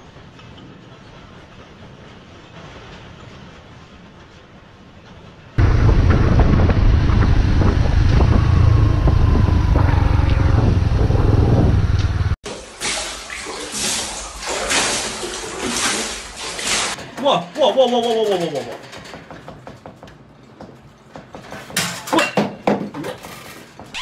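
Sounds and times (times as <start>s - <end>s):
car rumbling: 5.6s - 12.4s
water sloshing in a bathtub: 12.4s - 17.4s.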